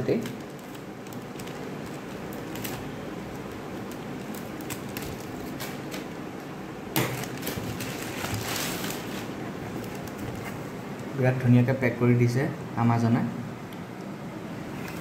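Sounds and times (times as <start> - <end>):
plastic bag crackling and rustling: 0.0 - 6.2, 7.0 - 10.7
plastic crinkling: 0.0 - 6.3, 7.0 - 11.1.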